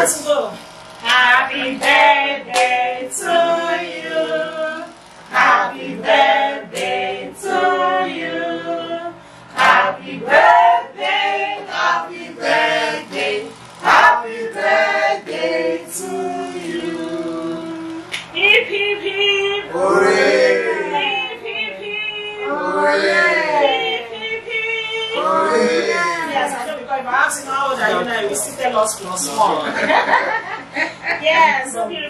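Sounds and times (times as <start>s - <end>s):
men and women singing together: 1.0s - 26.6s
hand claps: 18.1s - 18.3s.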